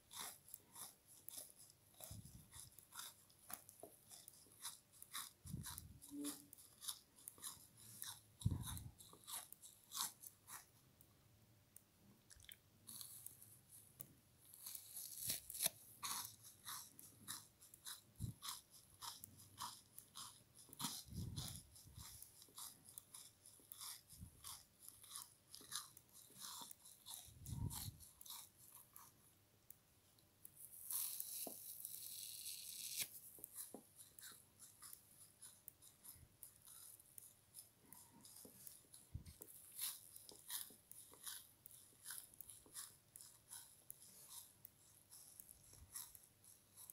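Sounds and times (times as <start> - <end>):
frozen sponge crunching: 14.5 - 29.1, 30.6 - 37.3, 37.9 - 46.9.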